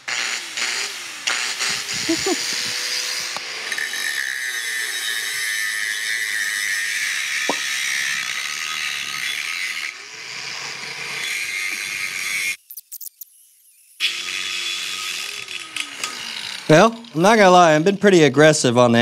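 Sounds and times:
angle grinder grinding steel pipe: 0:00.0 - 0:12.6, 0:13.2 - 0:19.0.

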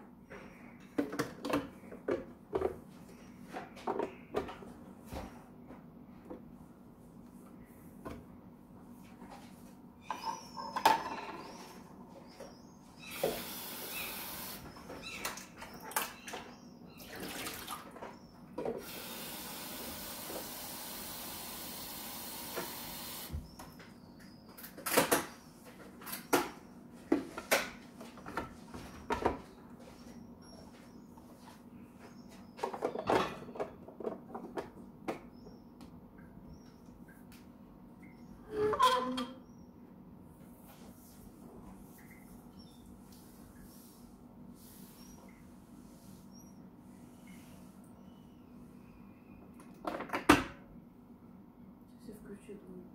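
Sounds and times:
tap water running into tank: 0:18.8 - 0:23.4.

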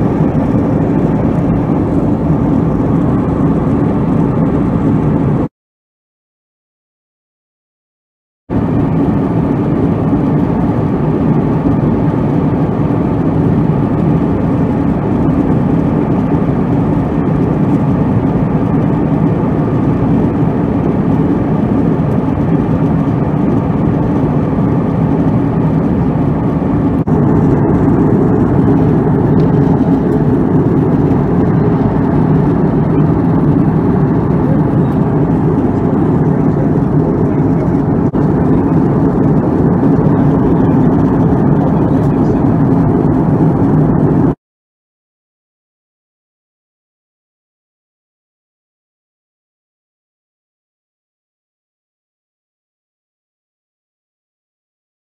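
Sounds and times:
aircraft cabin engine rumble: 0:00.0 - 0:05.5, 0:08.5 - 0:44.4.

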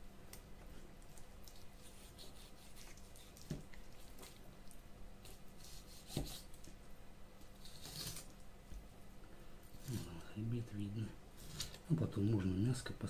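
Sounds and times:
knife scraping fish flesh: 0:01.4 - 0:04.4, 0:05.2 - 0:06.6, 0:07.6 - 0:08.3.

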